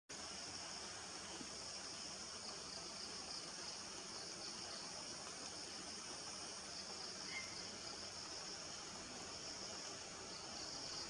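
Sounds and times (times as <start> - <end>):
insects buzzing: 0.1 - 11.0
faint short chirp: 7.2 - 7.7.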